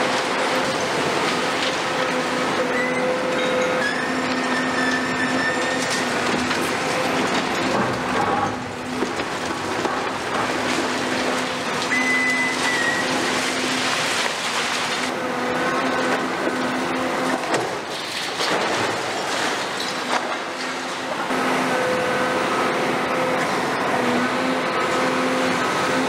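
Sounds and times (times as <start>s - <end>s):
excavator diesel engine under load: 0.0s - 26.0s
high metallic squeals: 2.6s - 6.1s, 11.9s - 13.4s
concrete and rebar clattering: 16.0s - 21.1s.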